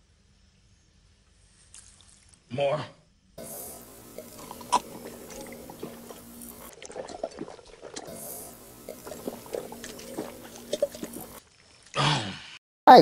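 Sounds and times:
man gulping and swallowing: 3.4s - 11.4s.

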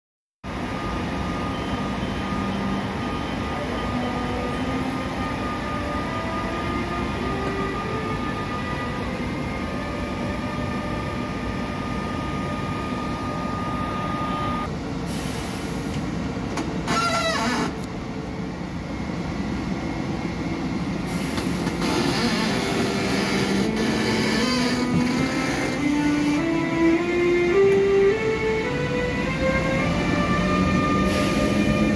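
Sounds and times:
train running and rail noise: 0.4s - 31.9s
locomotive rising converter tones: 0.5s - 15.0s, 15.7s - 31.9s
brief squeal: 16.9s - 17.8s.

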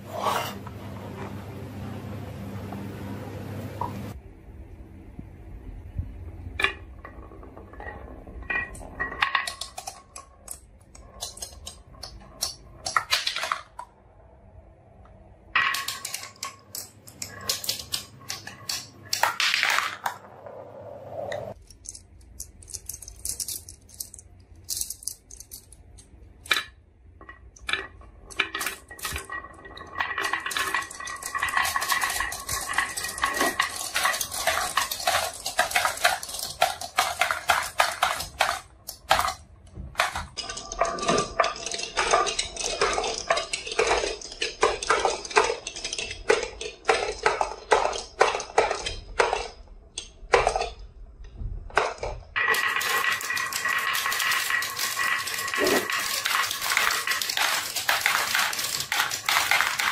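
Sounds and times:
marbles clattering down wood: 6.5s - 13.9s, 15.5s - 20.5s, 21.5s - 50.8s, 51.7s - 59.9s
marbles clinking into plastic: 27.5s - 39.4s, 52.4s - 59.9s.

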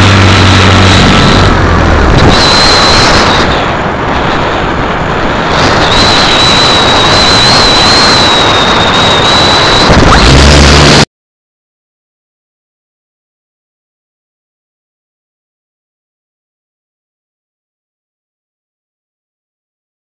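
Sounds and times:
high-pitched whine: 0.0s - 4.6s, 5.2s - 11.1s
low motor hum: 0.0s - 6.8s, 9.4s - 11.1s
wind buffeting microphone: 0.0s - 11.0s.

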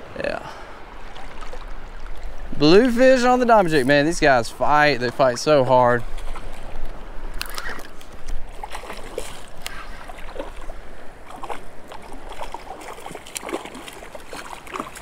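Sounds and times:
small waves washing: 0.0s - 15.0s
fish splashing at the surface: 7.4s - 15.0s.

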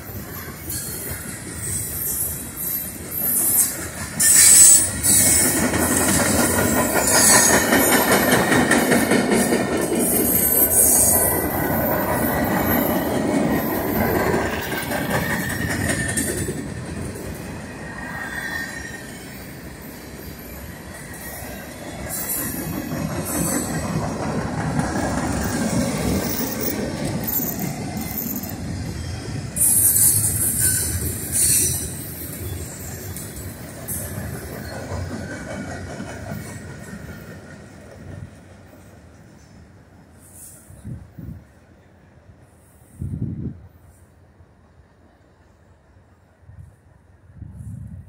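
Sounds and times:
freight train rumbling with clacking wheels: 0.0s - 48.0s
high-pitched wheel squeal: 0.4s - 5.6s, 18.0s - 19.6s, 27.3s - 33.2s.

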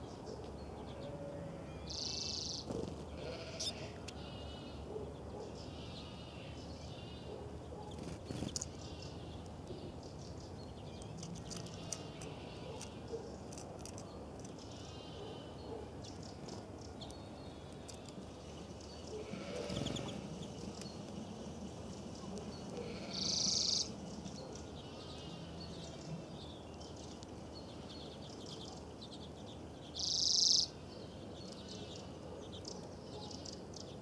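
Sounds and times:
quavering animal calls: 1.0s - 5.0s, 19.1s - 20.4s, 22.4s - 23.9s.

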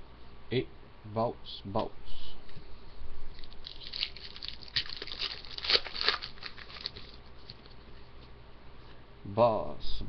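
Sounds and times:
foil wrapper crinkling: 3.3s - 7.8s.

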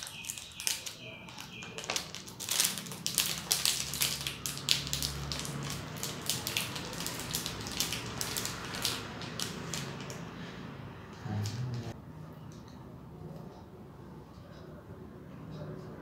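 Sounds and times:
plastic wrapper crinkling: 0.0s - 10.3s.

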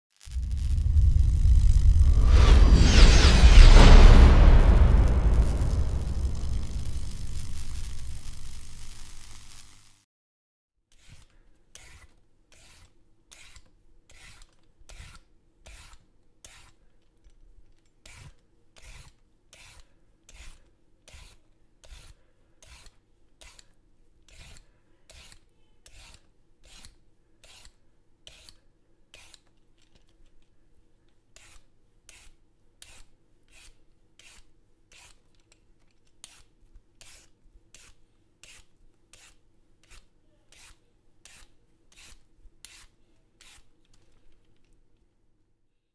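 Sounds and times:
peeler scraping carrot: 18.0s - 29.5s, 31.4s - 43.7s.

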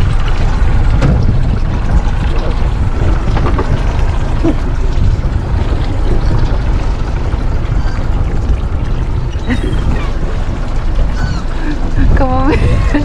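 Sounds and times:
boat engine rumbling: 0.0s - 13.0s
faint gull calls: 7.6s - 8.2s, 11.1s - 11.6s.

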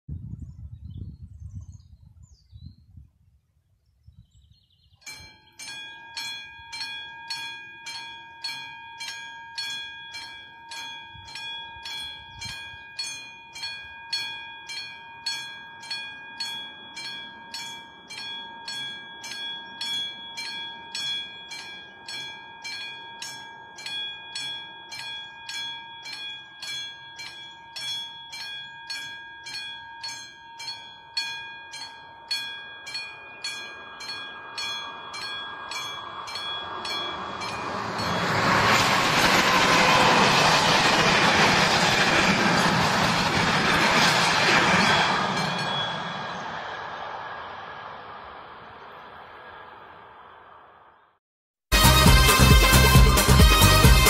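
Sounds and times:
level crossing warning bell: 5.1s - 42.1s, 44.5s - 46.7s
low rumble: 36.1s - 50.8s.

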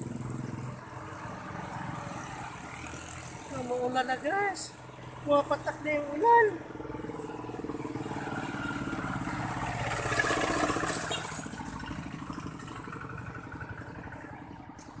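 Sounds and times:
vehicle engine running: 3.5s - 15.0s.

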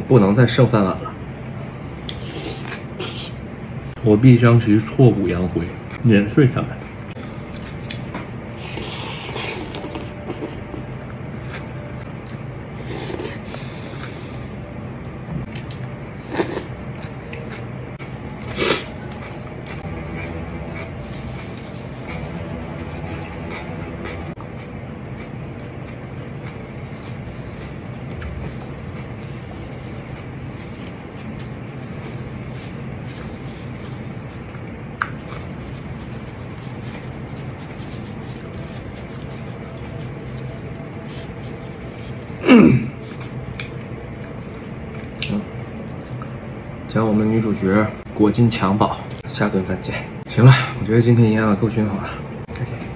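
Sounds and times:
person chewing: 6.8s - 14.4s, 15.4s - 46.6s
low hum: 6.8s - 52.9s
paper tissue rustling: 18.2s - 24.3s, 26.6s - 44.9s.

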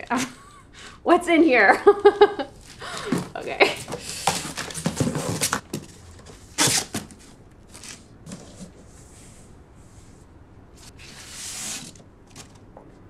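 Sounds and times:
cardboard box and paper rustling: 2.6s - 9.0s, 11.0s - 12.7s.

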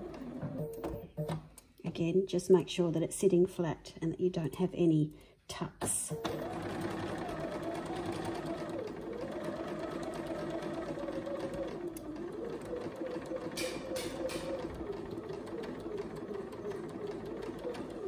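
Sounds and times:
sewing machine running: 6.2s - 18.0s.

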